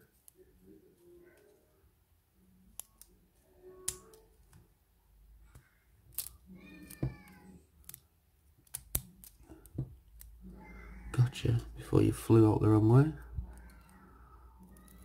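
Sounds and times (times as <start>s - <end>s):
tweezers clicking in a lock: 8.6s - 10.4s.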